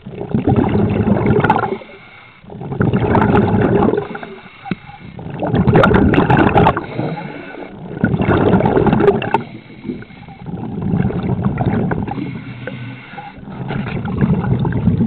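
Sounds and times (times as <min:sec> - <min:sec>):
underwater bubbling and rushing: 0:00.0 - 0:15.0.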